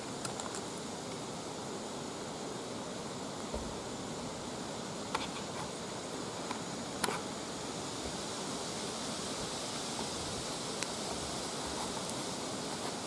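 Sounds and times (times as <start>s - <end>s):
faint insect drone: 0.0s - 13.0s
woodland background hiss: 0.0s - 13.0s
small sharp clicks: 0.2s - 0.7s.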